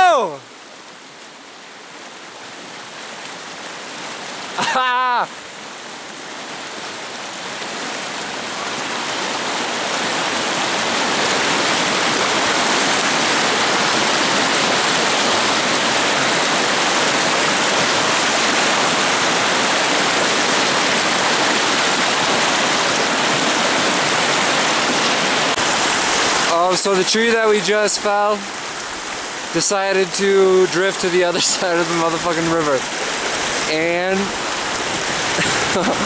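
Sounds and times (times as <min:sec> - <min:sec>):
rushing whitewater river: 0:00.0 - 0:36.0.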